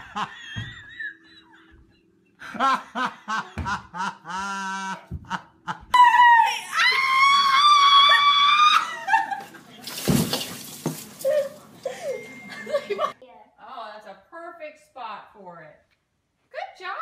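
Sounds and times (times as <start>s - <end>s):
person laughing: 0.0s - 6.0s, 11.2s - 13.2s
high-pitched scream: 6.0s - 9.1s.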